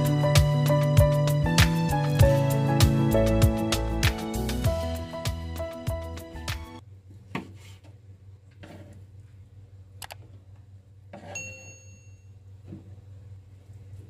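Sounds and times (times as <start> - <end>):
background music: 0.0 - 6.8.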